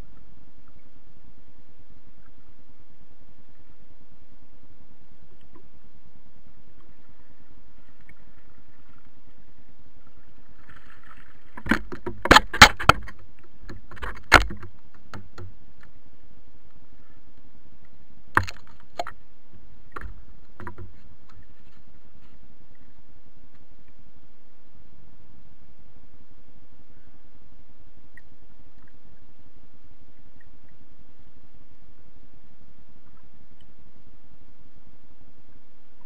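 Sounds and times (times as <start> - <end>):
knocks and clatters in boat: 10.7 - 15.9, 19.9 - 22.4.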